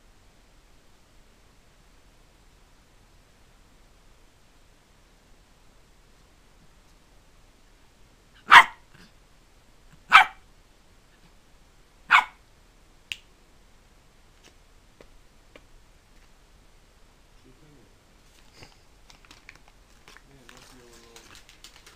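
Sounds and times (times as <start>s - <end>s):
small dog barking: 8.4s - 9.1s, 10.0s - 10.4s, 12.1s - 12.4s.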